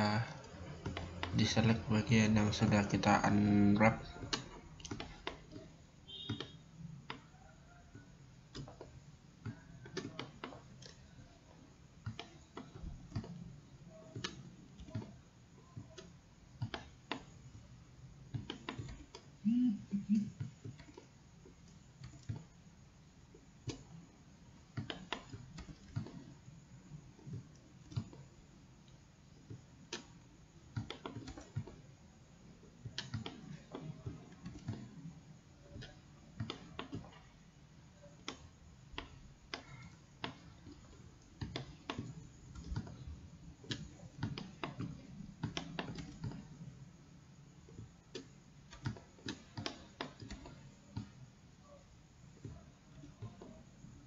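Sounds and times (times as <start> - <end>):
faint low hum: 0.0 - 54.0
mouse and keyboard clicks: 0.4 - 11.1, 12.0 - 17.4, 18.3 - 19.3, 24.7 - 26.4, 27.2 - 31.8, 32.8 - 35.0, 35.6 - 37.3, 38.0 - 46.7, 47.7 - 51.8.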